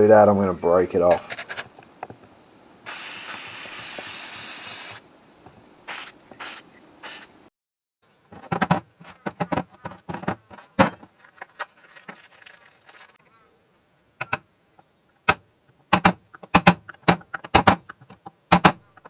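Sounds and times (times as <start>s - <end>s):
spray can hissing: 2.9s - 5.0s, 5.9s - 7.3s
small parts clicking and knocking: 14.2s - 19.0s.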